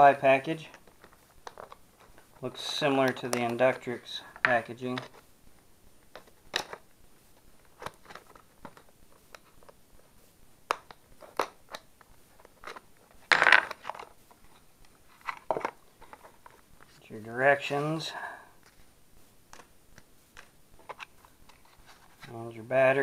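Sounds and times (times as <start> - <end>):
plastic packaging clicks and crinkles: 0.6 - 2.4, 7.6 - 9.8.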